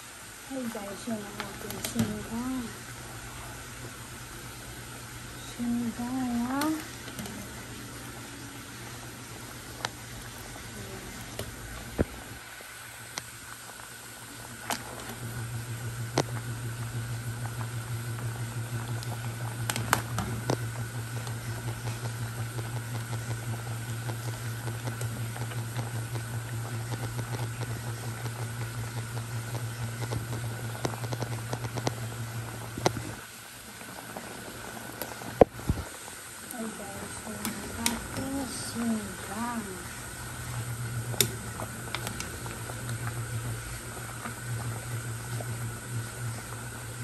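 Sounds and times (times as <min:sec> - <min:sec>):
soup boiling hard: 0:00.0 - 0:47.0
low pulsing hum: 0:14.2 - 0:33.2, 0:36.5 - 0:47.0.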